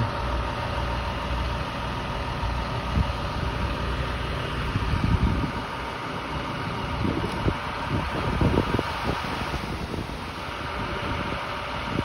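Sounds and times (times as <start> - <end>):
truck engine idling: 0.0 - 12.0.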